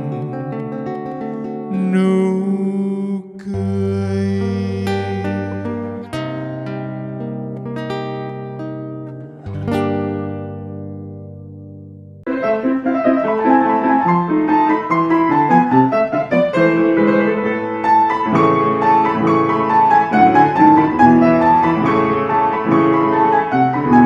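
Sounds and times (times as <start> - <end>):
piano music: 0.0 - 11.5, 12.2 - 24.0.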